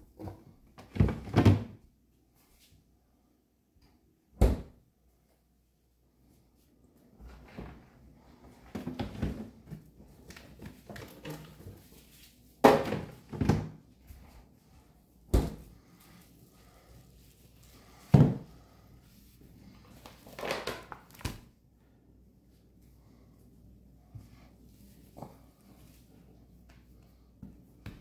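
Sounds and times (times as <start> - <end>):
knocks and thuds of kitchen work: 0.0 - 1.8, 4.3 - 4.8, 8.5 - 11.6, 12.6 - 13.9, 15.3 - 15.8, 18.0 - 18.7.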